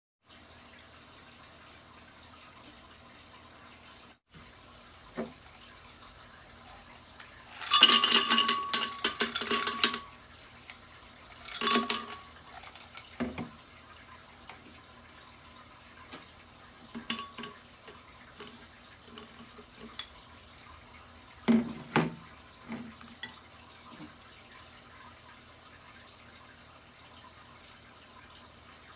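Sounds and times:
ice cubes clattering in glass jar: 7.4 - 10.2, 11.3 - 13.4, 17.0 - 17.6.

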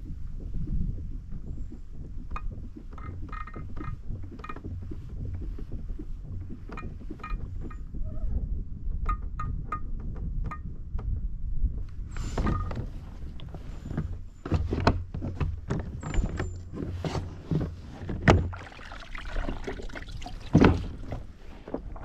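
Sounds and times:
kayak pedal drive rumble: 0.0 - 9.2, 11.8 - 22.0
knocks and clicks: 1.3 - 8.0, 8.9 - 11.2, 17.5 - 22.0.

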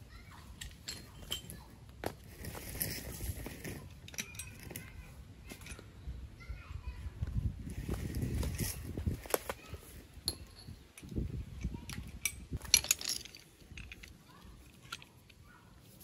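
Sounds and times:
sharp clinks and knocks: 10.2 - 14.2.

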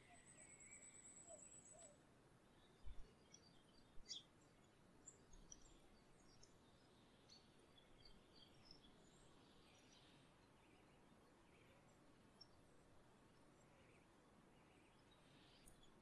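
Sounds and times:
small birds chirping: 0.0 - 12.6
background noise: 0.0 - 16.0.

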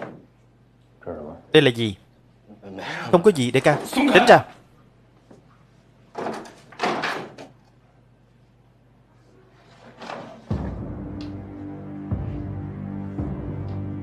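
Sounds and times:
low ominous music: 10.5 - 14.0.

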